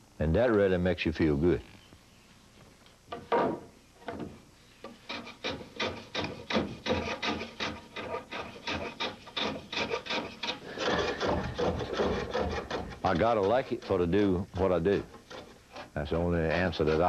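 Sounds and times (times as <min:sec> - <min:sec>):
hand saw cutting wood: 0:04.9 - 0:17.0.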